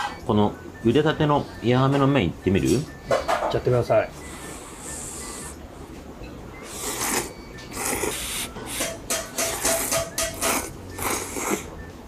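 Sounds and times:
man slurping noodles: 6.6 - 8.9, 9.8 - 11.7.

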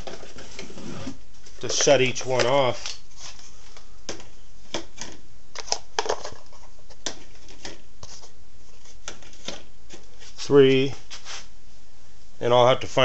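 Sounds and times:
plastic bins clicking and tapping: 0.0 - 0.7, 1.4 - 3.0, 4.1 - 7.8.

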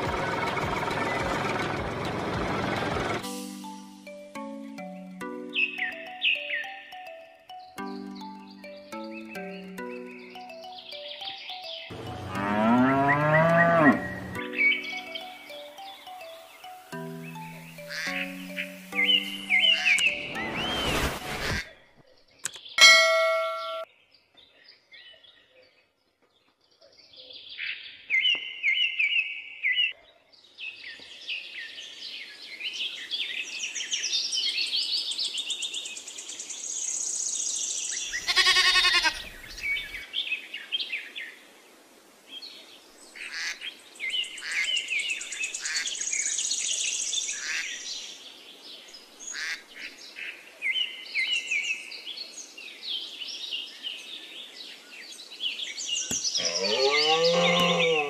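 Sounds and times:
songbirds chirping and trilling: 0.0 - 58.0
animal bleat: 38.2 - 39.4, 56.4 - 58.0.

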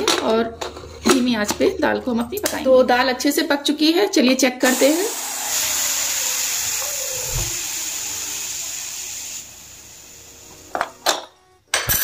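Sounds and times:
pressure cooker hissing steam: 4.6 - 10.7.

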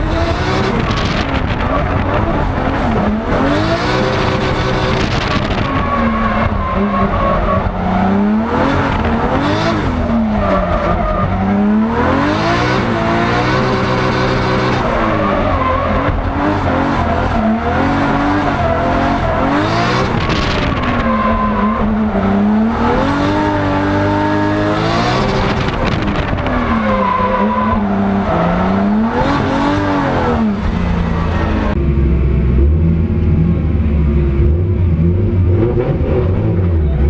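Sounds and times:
car engine revving: 0.0 - 37.0.

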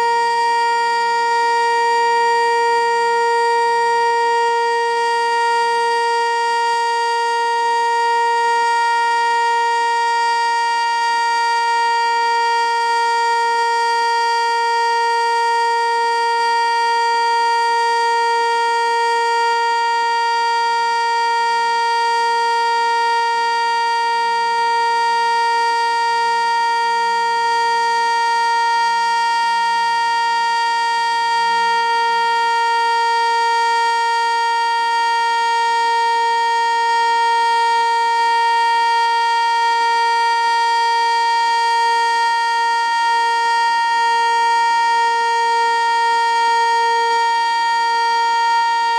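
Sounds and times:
warning siren steady tone: 0.0 - 48.9.

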